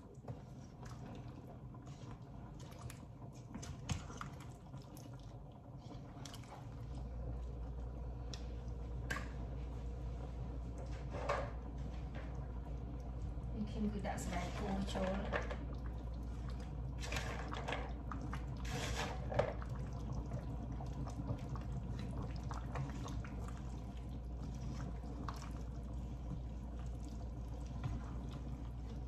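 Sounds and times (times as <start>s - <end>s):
spoon stirring liquid sloshing: 0.1s - 7.8s, 14.1s - 29.0s.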